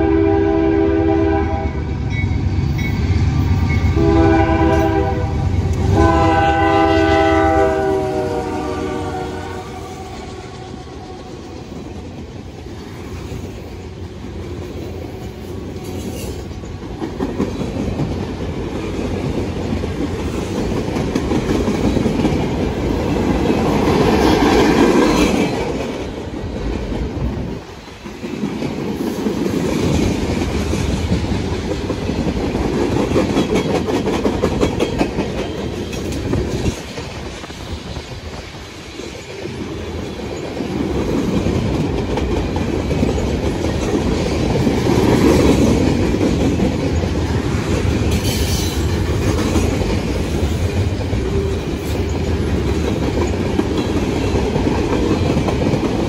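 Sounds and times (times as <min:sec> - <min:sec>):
locomotive air horn: 0:00.0 - 0:01.9, 0:03.9 - 0:10.6
train wheels clacking on rails: 0:01.4 - 0:56.0.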